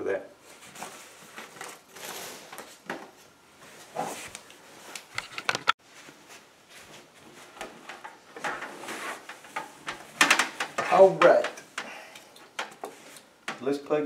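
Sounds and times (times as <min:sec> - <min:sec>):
rustling papers and packaging: 0:00.5 - 0:11.4.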